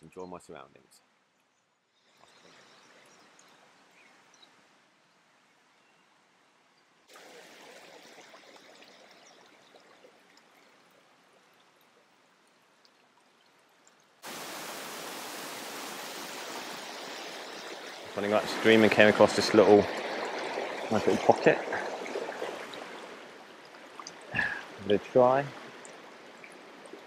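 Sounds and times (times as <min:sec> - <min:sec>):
river rushing over stones: 0:14.2 - 0:27.0.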